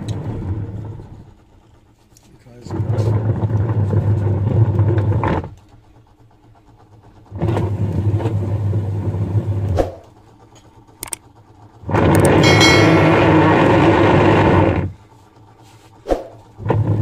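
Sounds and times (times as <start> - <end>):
washing machine motor humming: 2.7 - 15.0.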